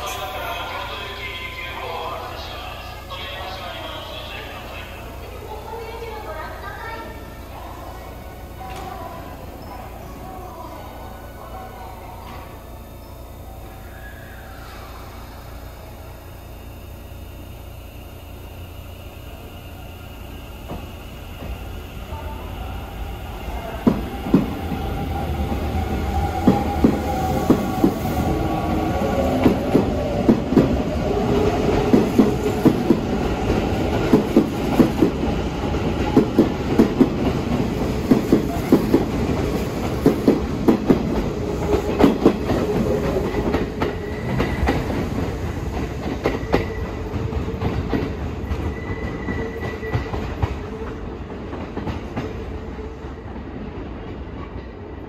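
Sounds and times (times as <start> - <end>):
train motor hum: 0.0 - 55.0
train wheels clacking over joints: 28.9 - 52.5.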